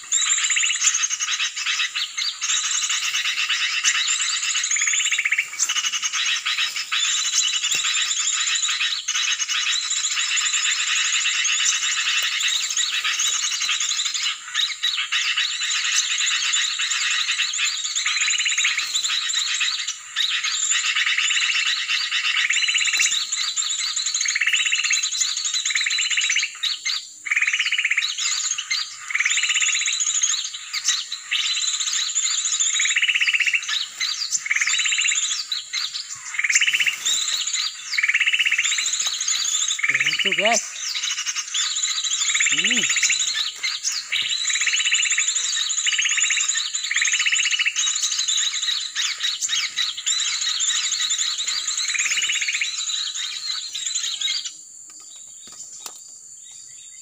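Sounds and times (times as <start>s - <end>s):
birds and insects chirping: 0.0s - 57.0s
short repeating call: 39.9s - 40.7s, 42.4s - 43.1s.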